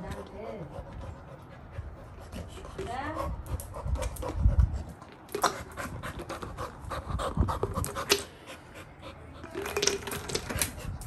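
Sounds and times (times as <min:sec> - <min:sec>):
puppy panting: 0:00.0 - 0:11.0.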